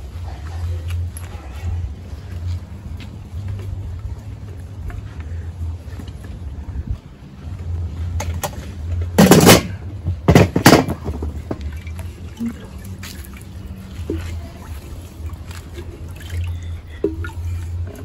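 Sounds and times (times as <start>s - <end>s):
liquid splashing: 11.6s - 17.7s
faint drips: 11.6s - 18.0s.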